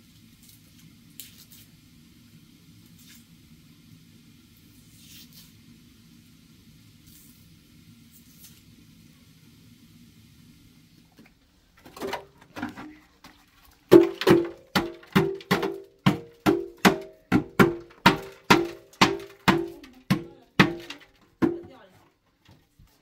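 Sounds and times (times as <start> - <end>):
rhythmic knocking with ringing: 13.9 - 21.8.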